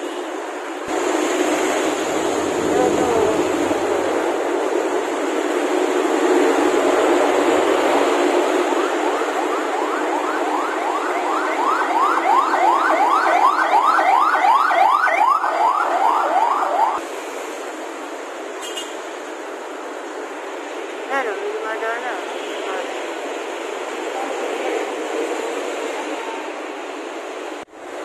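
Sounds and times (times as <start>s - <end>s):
road traffic noise: 0.0s - 28.0s
siren yelping: 8.6s - 17.0s.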